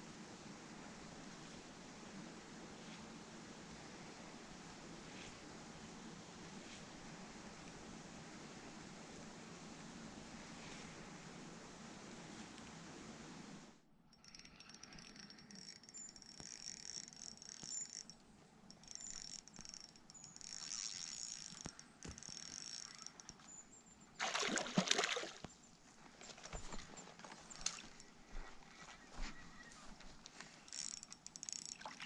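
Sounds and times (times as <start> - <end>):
fishing reel whirring and ticking: 14.1 - 23.6, 30.6 - 32.0.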